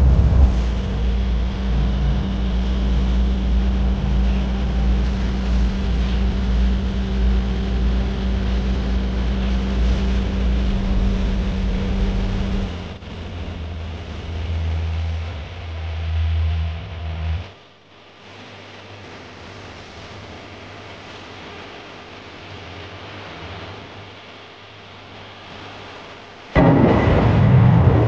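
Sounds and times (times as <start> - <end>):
wind-like hiss: 0.0 - 15.6, 18.1 - 28.0
low engine drone: 0.0 - 28.0.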